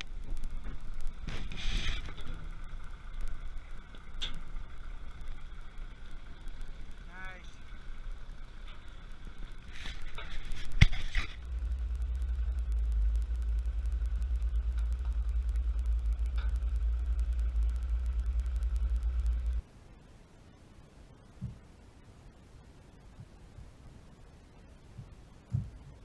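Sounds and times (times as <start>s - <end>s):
tractor diesel engine rumbling: 0.0s - 19.6s.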